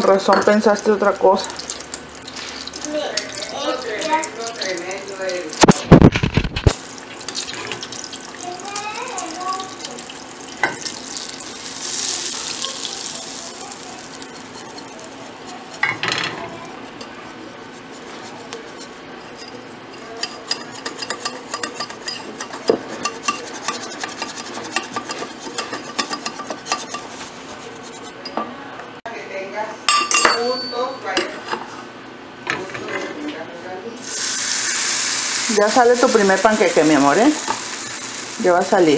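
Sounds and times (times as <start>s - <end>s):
whisk clicking against bowl: 14.0s - 28.3s.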